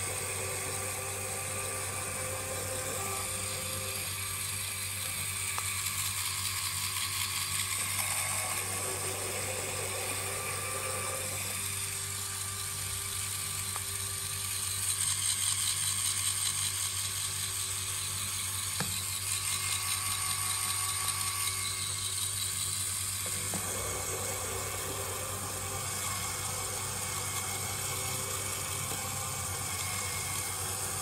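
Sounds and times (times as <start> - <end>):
toy electric motor whirring: 0.0 - 31.0
plastic gears rattling: 3.9 - 10.2, 11.2 - 24.1.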